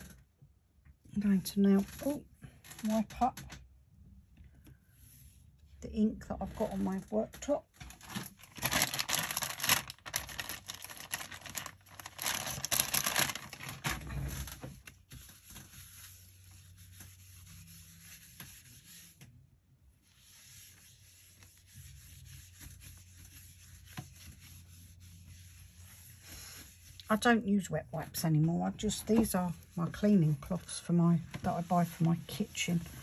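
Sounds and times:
cloth rubbing on worktop: 0:14.2 - 0:27.0, 0:28.7 - 0:33.0.

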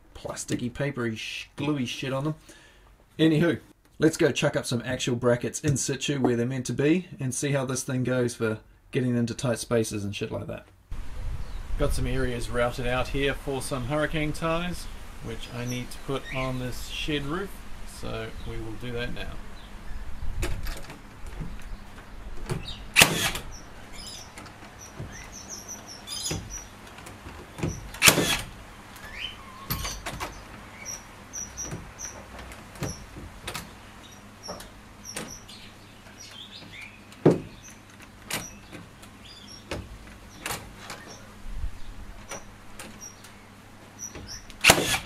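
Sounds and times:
nailer firing: 0:22.9 - 0:23.6, 0:27.6 - 0:28.5, 0:44.6 - 0:45.0.

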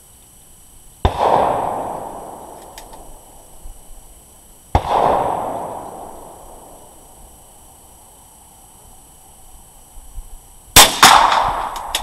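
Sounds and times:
gunshots echoing: 0:01.1 - 0:02.5, 0:04.8 - 0:06.4, 0:10.8 - 0:12.0.

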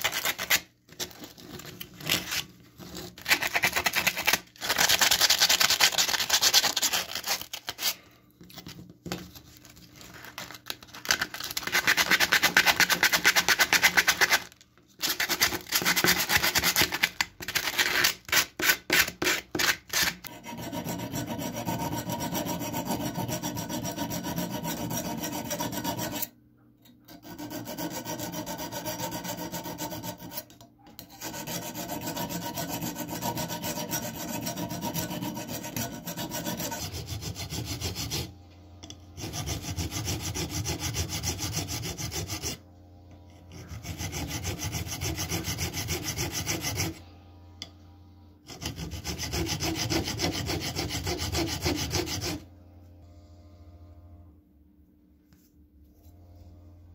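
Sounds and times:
hand file rasping on steel: 0:11.6 - 0:26.3, 0:27.1 - 0:38.3, 0:39.2 - 0:42.6, 0:43.5 - 0:47.0, 0:48.5 - 0:52.4.

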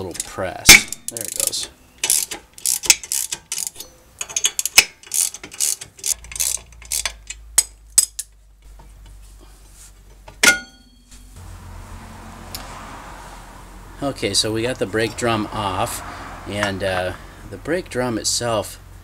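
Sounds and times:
ratchet clicking: 0:00.1 - 0:08.4
ringing metallic clang: 0:10.4 - 0:11.4.

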